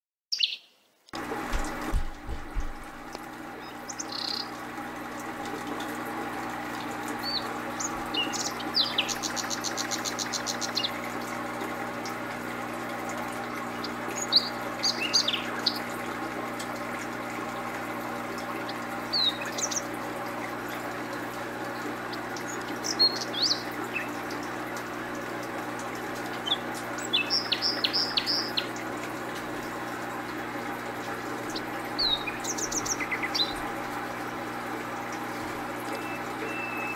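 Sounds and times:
small birds chirping: 0:00.3 - 0:01.0, 0:03.5 - 0:04.6, 0:07.2 - 0:11.0, 0:13.7 - 0:15.9, 0:18.6 - 0:20.0, 0:21.7 - 0:24.5, 0:26.3 - 0:28.8, 0:31.4 - 0:33.8, 0:35.4 - 0:36.9
steady background hum: 0:01.2 - 0:36.9.

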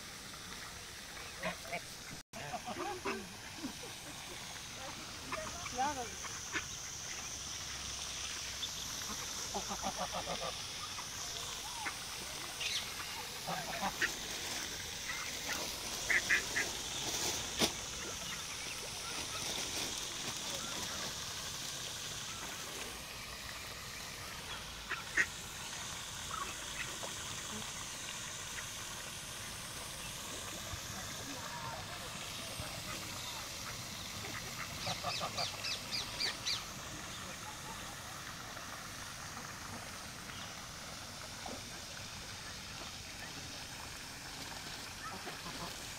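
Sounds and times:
faint steady hiss: 0:00.0 - 0:45.9
ducks quacking: 0:01.3 - 0:03.5, 0:05.1 - 0:07.3, 0:09.0 - 0:11.0, 0:11.7 - 0:17.0, 0:24.5 - 0:25.3, 0:32.6 - 0:36.6, 0:45.0 - 0:45.9
geese honking: 0:13.4 - 0:14.2, 0:15.1 - 0:16.7.

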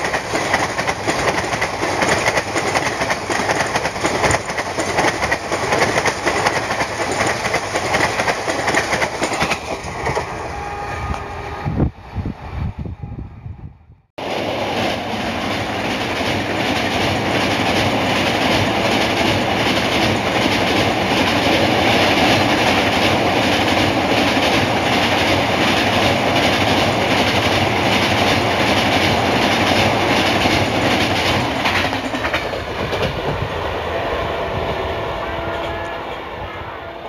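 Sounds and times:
train wheels clattering: 0:00.0 - 0:10.5, 0:14.7 - 0:33.5
train coaches rumbling over bridge: 0:00.0 - 0:13.1, 0:14.2 - 0:37.0.

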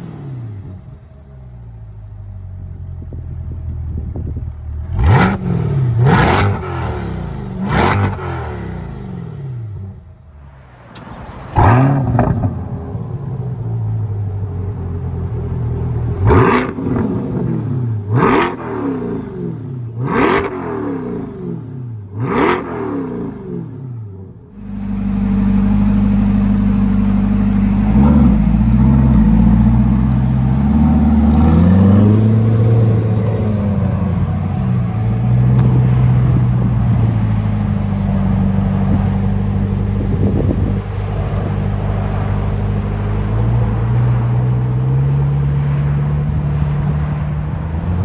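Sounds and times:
car exhaust driving off: 0:00.0 - 0:48.0.

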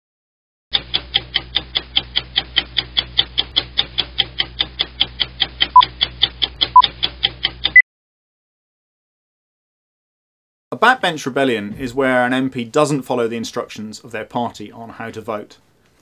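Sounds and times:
rapid clock ticking: 0:00.7 - 0:07.8.

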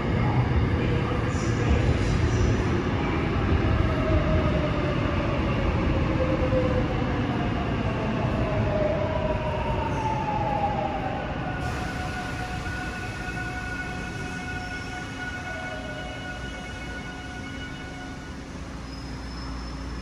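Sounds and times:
electric train slowing down: 0:11.5 - 0:20.0.

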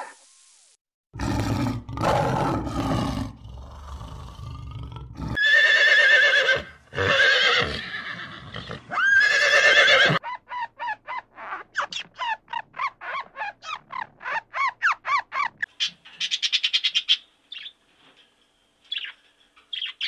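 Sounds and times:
lion growling: 0:01.2 - 0:05.4
horse whinnying: 0:05.3 - 0:10.2.

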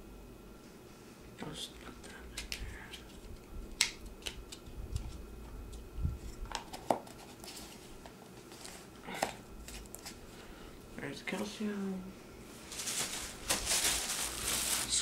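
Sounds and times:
soft rustles: 0:12.5 - 0:15.0.

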